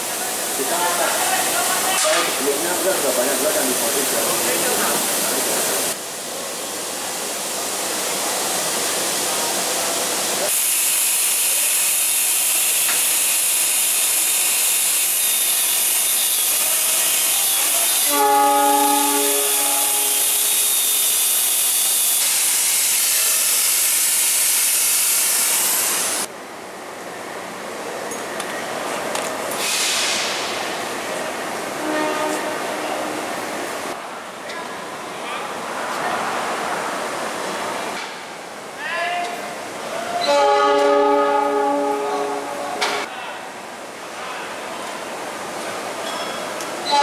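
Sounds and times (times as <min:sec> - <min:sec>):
workshop machinery noise: 0:10.4 - 0:26.3, 0:40.3 - 0:43.1
short horn-like tone: 0:18.1 - 0:20.7, 0:31.8 - 0:33.3, 0:40.2 - 0:42.9
angle grinder on steel: 0:19.1 - 0:25.8.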